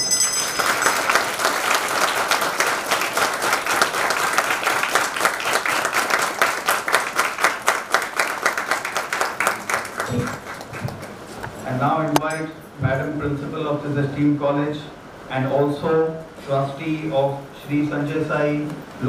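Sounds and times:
audience clapping: 0:00.0 - 0:11.6.

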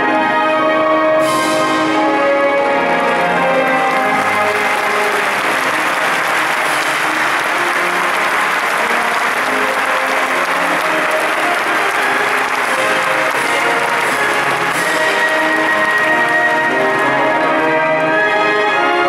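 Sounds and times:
orchestra playing: 0:00.0 - 0:19.0
audience applauding: 0:02.3 - 0:17.8.

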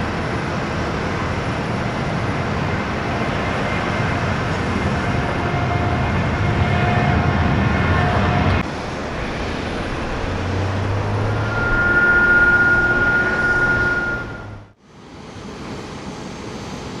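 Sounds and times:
vehicle and aircraft engines rumbling: 0:00.0 - 0:17.0
high whine: 0:08.2 - 0:14.8
low hum: 0:08.6 - 0:14.7.

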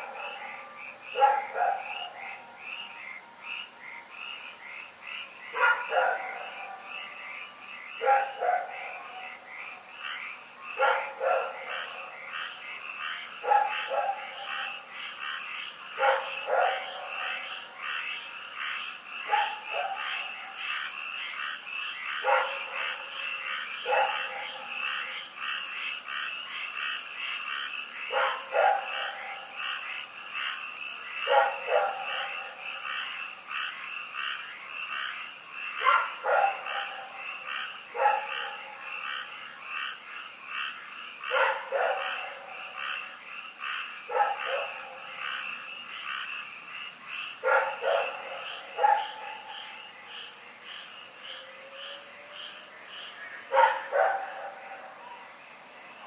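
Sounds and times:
dog barking: 0:00.0 - 0:00.6, 0:01.2 - 0:02.1, 0:05.6 - 0:06.9, 0:08.0 - 0:09.2, 0:10.8 - 0:12.1, 0:13.4 - 0:14.8, 0:16.0 - 0:17.5, 0:19.2 - 0:20.6, 0:22.2 - 0:23.2, 0:23.8 - 0:24.8, 0:28.1 - 0:29.5, 0:31.2 - 0:32.6, 0:35.8 - 0:37.2, 0:37.9 - 0:38.7, 0:41.2 - 0:42.5, 0:44.1 - 0:45.1, 0:47.4 - 0:49.7, 0:53.5 - 0:54.9
frogs croaking: 0:00.0 - 0:56.0.

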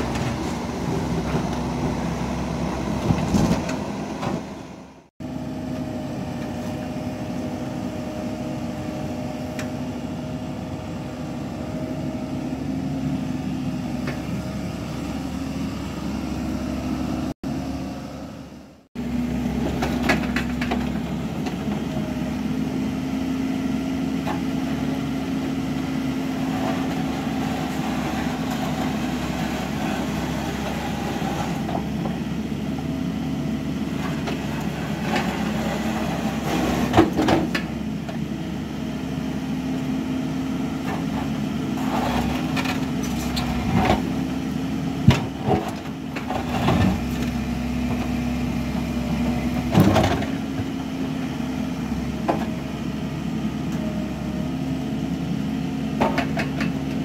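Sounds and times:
diesel excavator engine running: 0:00.0 - 0:57.0
steel bucket scraping gravel: 0:26.3 - 0:32.0, 0:34.1 - 0:37.0, 0:41.0 - 0:44.1.

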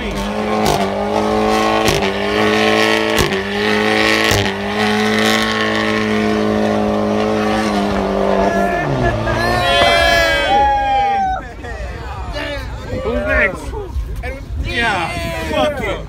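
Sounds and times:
car engine revving high: 0:00.0 - 0:10.5.

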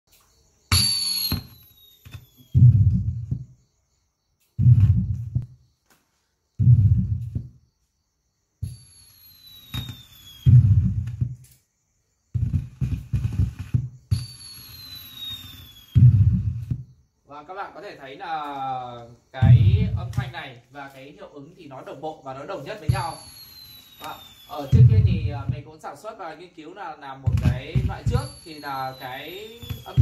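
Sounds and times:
firework whistles falling in pitch: 0:00.3 - 0:03.6, 0:08.6 - 0:11.5, 0:12.4 - 0:17.0, 0:19.4 - 0:20.4, 0:22.3 - 0:26.2, 0:26.8 - 0:30.0
low firework booms: 0:02.5 - 0:03.6, 0:04.6 - 0:05.6, 0:06.6 - 0:07.6, 0:09.7 - 0:11.4, 0:15.9 - 0:17.0, 0:19.4 - 0:20.4, 0:22.6 - 0:25.8, 0:27.2 - 0:30.0
quick firework bangs: 0:09.5 - 0:11.4, 0:12.4 - 0:17.0, 0:22.6 - 0:25.7, 0:27.3 - 0:30.0.

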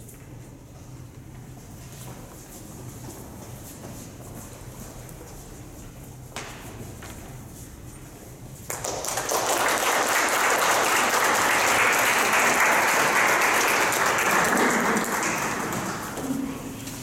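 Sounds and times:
audience applauding: 0:08.7 - 0:16.5.

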